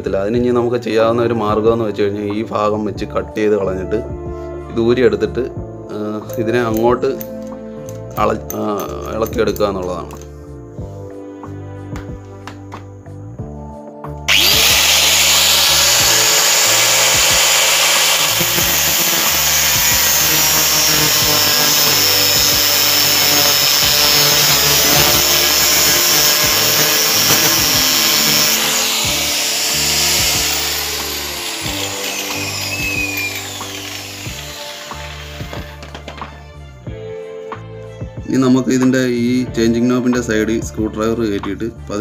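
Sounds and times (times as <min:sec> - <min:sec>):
angle grinder cutting steel: 0:14.3 - 0:35.9.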